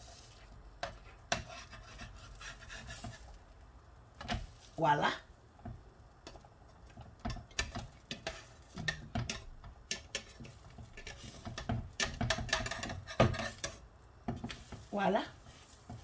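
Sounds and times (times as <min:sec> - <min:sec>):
metal spatula scraping frying pan: 0:00.0 - 0:03.4, 0:07.3 - 0:16.0.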